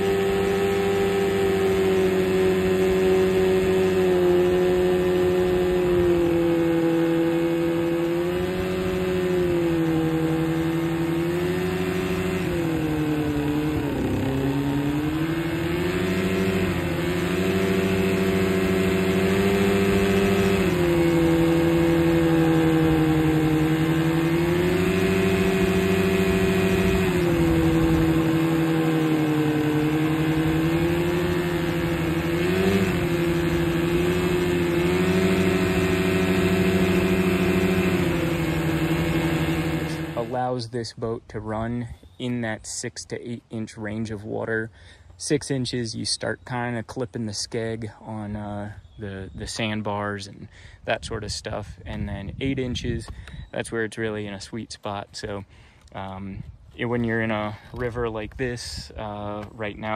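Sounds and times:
propeller throwing spray: 0.0s - 40.6s
outboard motor running: 0.0s - 59.9s.

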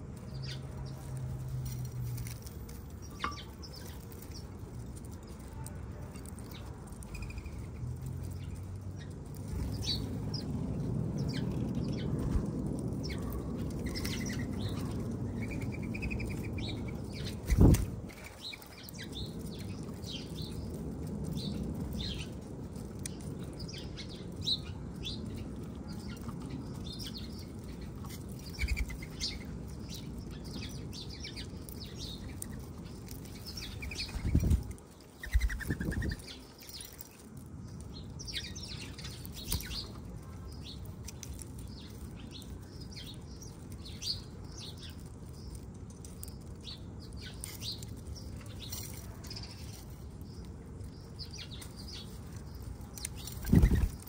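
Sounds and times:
small birds chirping: 0.0s - 54.0s
wings flapping: 15.6s - 18.5s, 53.2s - 54.0s.

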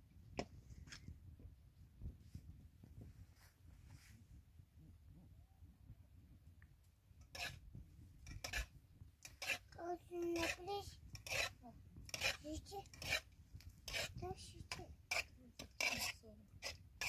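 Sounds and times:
utensil scraping a metal pan: 7.2s - 7.6s, 8.2s - 17.0s.

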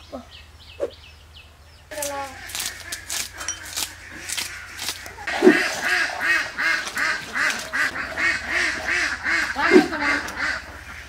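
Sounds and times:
duck quacking: 2.0s - 11.0s.

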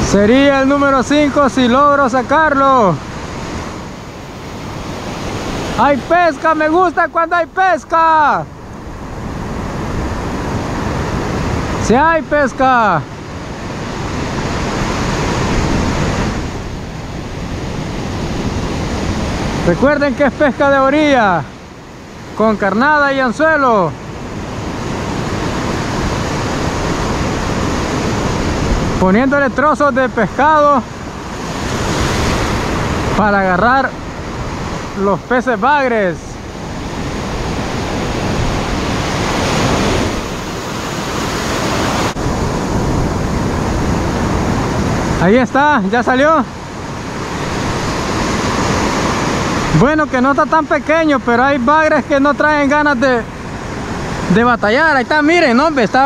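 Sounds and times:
ocean surf breaking on beach: 0.0s - 56.0s
wind buffeting microphone: 8.5s - 50.2s.

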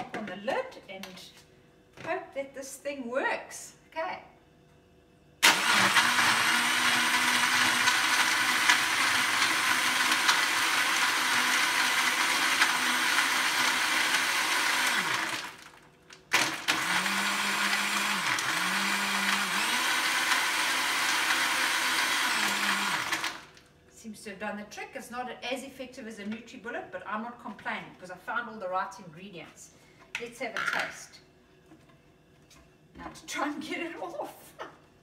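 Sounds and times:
blender motor blending ice: 5.4s - 23.6s.

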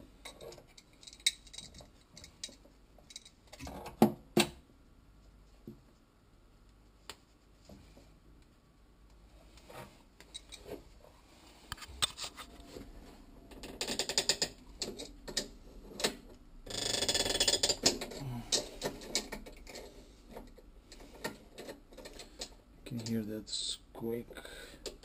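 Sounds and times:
rapid creaky ticking: 13.6s - 15.5s, 16.6s - 20.0s.

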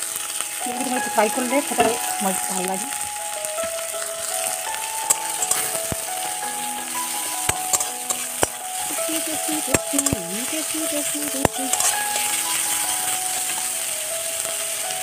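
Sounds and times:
vegetables sizzling in oil: 0.0s - 15.0s
spatula scraping and knocking pan: 0.9s - 2.1s, 5.1s - 5.9s, 7.4s - 8.6s, 11.3s - 12.3s.

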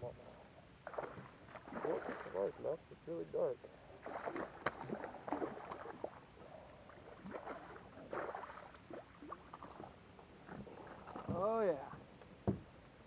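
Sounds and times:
fish splashing at water surface: 0.8s - 2.4s, 4.0s - 6.2s, 7.1s - 9.9s.

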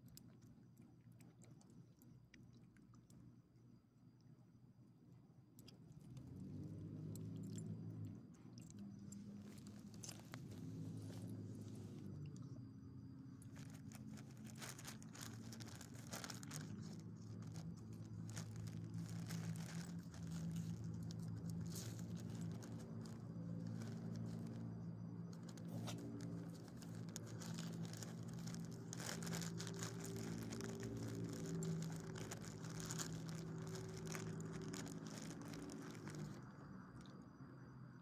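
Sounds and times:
dog crunching a treat: 5.6s - 11.4s, 13.4s - 36.5s.

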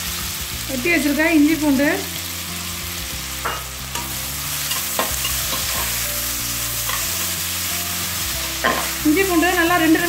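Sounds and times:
onions sizzling in hot oil: 0.0s - 10.0s
metal spatula scraping a pan: 3.5s - 7.5s, 8.4s - 9.0s.

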